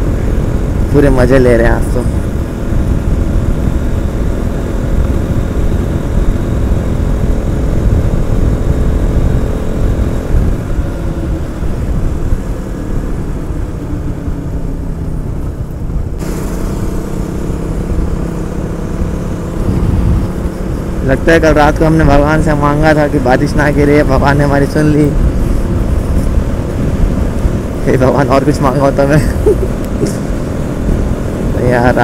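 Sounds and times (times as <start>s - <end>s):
motorcycle engine running: 0.0s - 32.0s
wind rumble on microphone: 0.0s - 32.0s.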